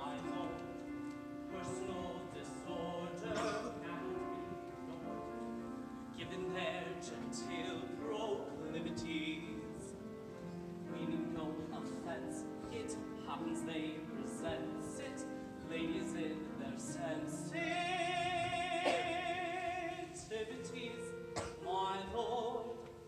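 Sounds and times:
person singing with vibrato: 0:01.5 - 0:05.4, 0:10.9 - 0:23.0.

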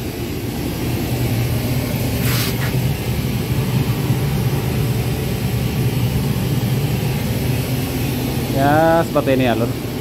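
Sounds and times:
engine droning: 0:00.0 - 0:10.0
short hiss: 0:02.2 - 0:02.8.

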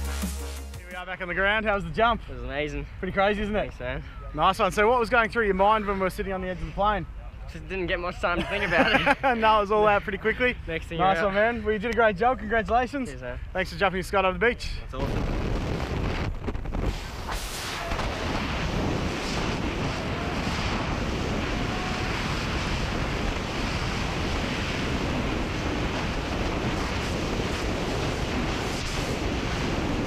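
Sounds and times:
wind rushing over microphone: 0:11.6 - 0:30.0.

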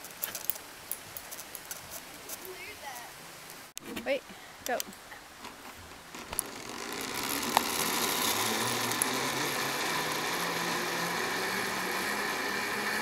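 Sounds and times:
pulleys whirring along steel cable: 0:06.2 - 0:13.0.

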